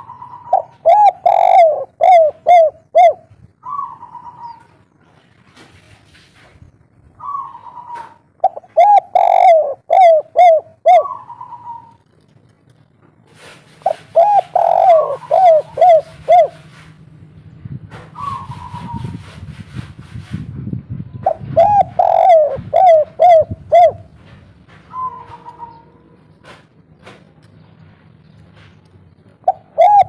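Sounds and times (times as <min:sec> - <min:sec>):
dove cooing: 0:00.0 - 0:04.8, 0:07.2 - 0:12.1, 0:13.8 - 0:16.8, 0:18.2 - 0:19.2, 0:21.2 - 0:24.2, 0:24.9 - 0:26.2, 0:29.4 - 0:30.0
dove drawn-out high note: 0:14.2 - 0:16.6.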